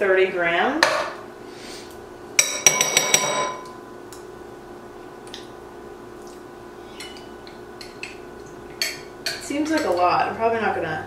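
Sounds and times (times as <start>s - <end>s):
faint steady hum: 0.0s - 11.0s
metal spoon clinking against glass: 8.8s - 10.1s.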